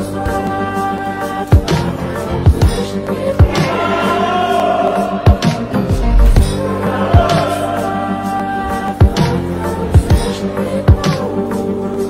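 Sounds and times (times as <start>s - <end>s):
deep drum beat: 5.9s - 6.8s.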